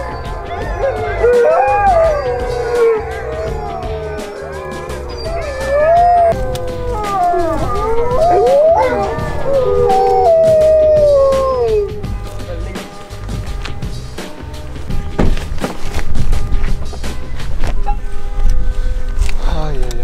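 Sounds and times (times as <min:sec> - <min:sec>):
huskies howling: 0:00.0 - 0:12.2.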